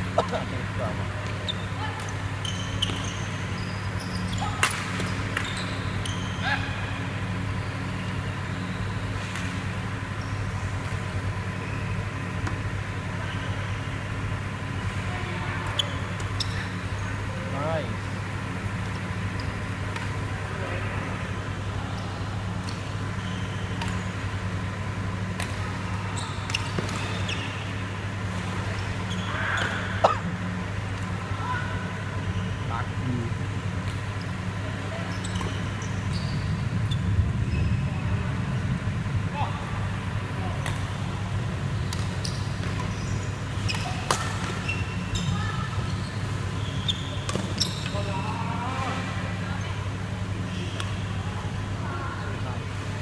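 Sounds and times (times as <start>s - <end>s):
steady low hum: 0.0s - 53.0s
shoe squeaks on court floor: 1.3s - 6.4s, 15.7s - 17.0s, 23.2s - 24.1s, 26.1s - 27.7s, 28.8s - 29.8s, 35.0s - 37.8s, 41.8s - 48.2s
racket hitting shuttlecock: 43.7s - 44.6s.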